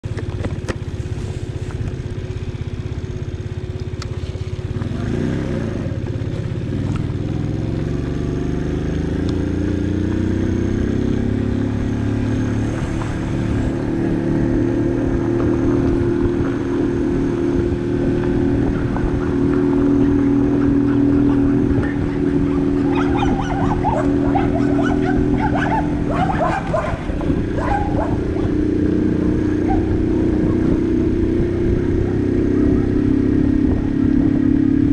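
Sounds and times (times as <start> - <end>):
moped engine: 0.0 - 34.9
dog barking: 18.8 - 28.6, 29.5 - 30.7.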